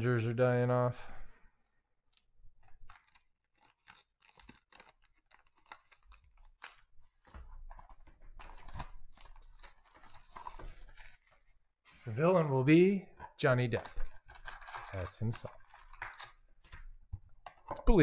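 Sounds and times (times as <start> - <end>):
plastic wrap crinkling and tearing: 2.6 - 11.6, 13.7 - 16.9.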